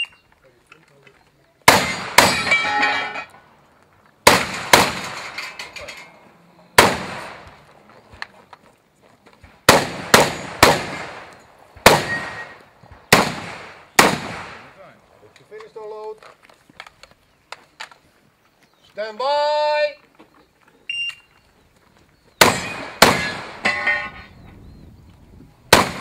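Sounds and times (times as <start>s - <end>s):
shotgun shots with echo: 1.7s - 2.8s, 4.2s - 5.4s, 6.8s - 7.5s, 9.6s - 14.8s, 22.4s - 23.7s, 25.7s - 26.0s.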